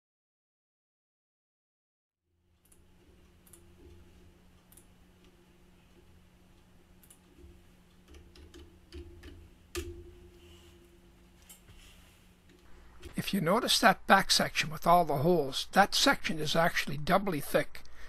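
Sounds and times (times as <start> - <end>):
low electrical hum: 2.3 - 18.0
computer mouse clicks: 2.6 - 4.0, 4.6 - 4.9, 7.0 - 9.9.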